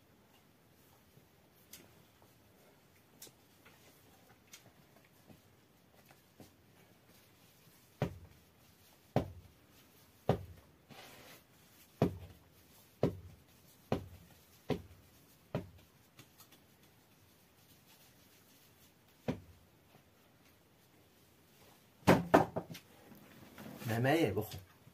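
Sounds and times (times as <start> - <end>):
dough slapping thuds: 7.7 - 9.6, 10.2 - 10.6, 11.8 - 16.3, 19.1 - 19.6.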